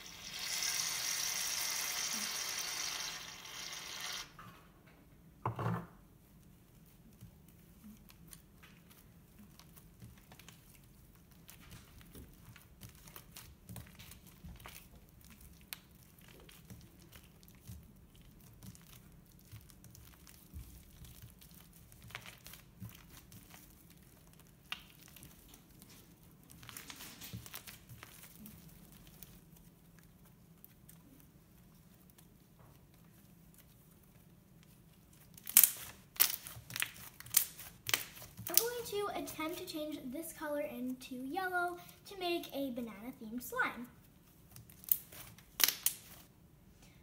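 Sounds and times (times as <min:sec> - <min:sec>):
sticky slime clicks and crackles: 0:35.1 - 0:38.9, 0:44.5 - 0:46.3.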